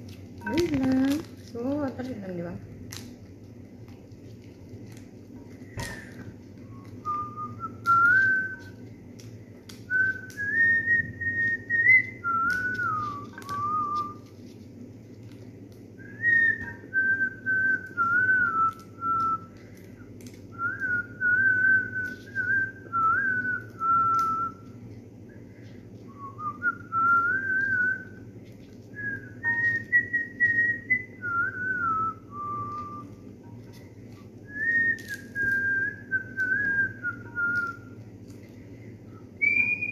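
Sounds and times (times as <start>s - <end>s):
person whistling a tune: 5.8s - 8.8s, 9.9s - 14.2s, 16.0s - 19.5s, 20.5s - 24.6s, 26.1s - 28.2s, 29.0s - 33.1s, 34.5s - 38.0s, 39.3s - 39.9s.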